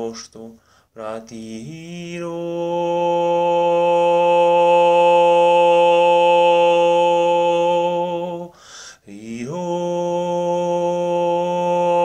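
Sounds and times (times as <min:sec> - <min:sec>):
man breathing in: 0:00.6 - 0:01.0, 0:08.5 - 0:09.1.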